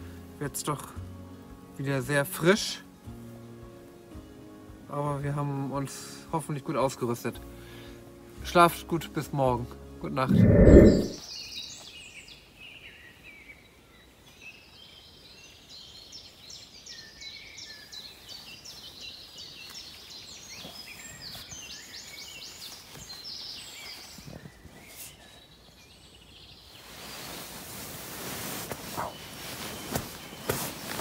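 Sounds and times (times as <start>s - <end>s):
songbirds singing: 10.3s - 27.4s, 29.0s - 31.0s
rustling hiss: 26.7s - 31.0s.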